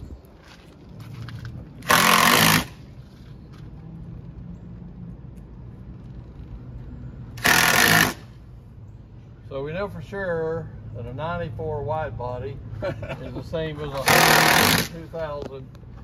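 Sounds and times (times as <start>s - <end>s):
cordless drill driving screws: 1.8s - 2.8s, 7.4s - 8.2s, 14.0s - 15.0s.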